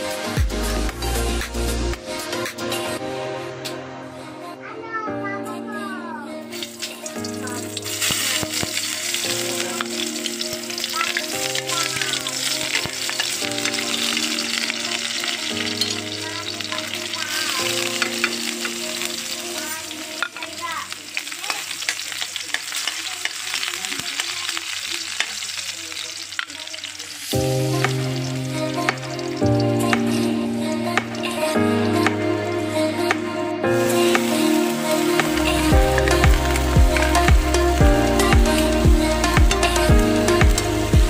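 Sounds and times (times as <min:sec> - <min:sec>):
soft background music: 0:00.0 - 0:21.2, 0:27.2 - 0:41.0
garlic sizzling in oil: 0:06.5 - 0:30.2, 0:33.8 - 0:40.9.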